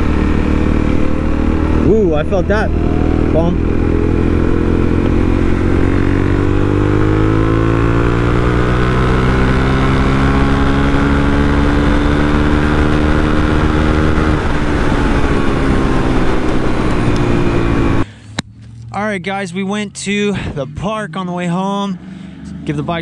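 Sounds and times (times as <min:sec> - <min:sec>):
motorcycle engine running hard: 0:00.0 - 0:23.0.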